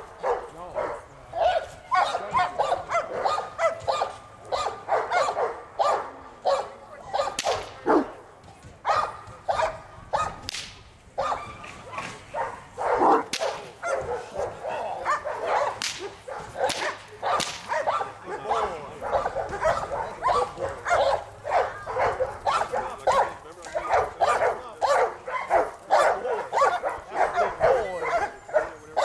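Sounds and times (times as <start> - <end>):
dog barking: 0.2 - 8.1, 8.9 - 10.4, 11.2 - 29.0
whip cracks: 7.3 - 7.9, 10.4 - 11.0, 13.2 - 13.8, 15.7 - 17.9.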